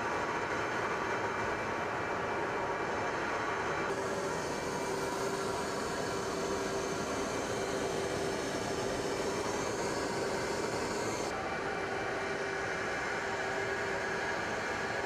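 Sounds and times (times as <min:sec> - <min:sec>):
high engine whine: 0:00.0 - 0:15.0
jet engine running: 0:03.9 - 0:15.0.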